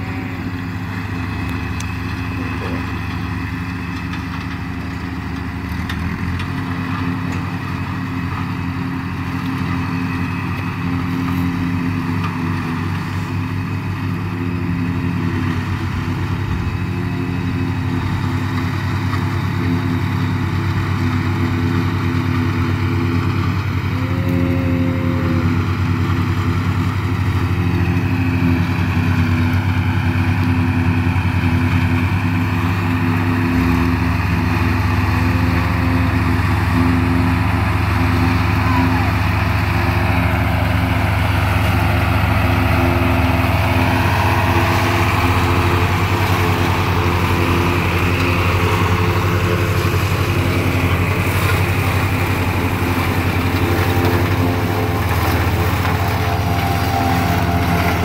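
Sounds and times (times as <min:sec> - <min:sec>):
forage chopper cutting corn: 0:00.0 - 0:03.2, 0:17.4 - 0:58.0
tractors running under load: 0:00.0 - 0:58.0.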